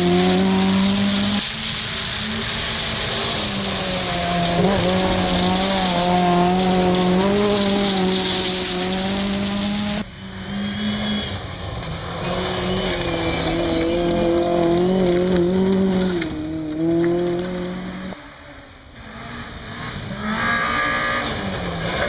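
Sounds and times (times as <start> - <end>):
car engine changing gear: 0.0 - 10.0
hiss over engine: 0.0 - 10.0
rally car engine at high revs: 0.0 - 22.0.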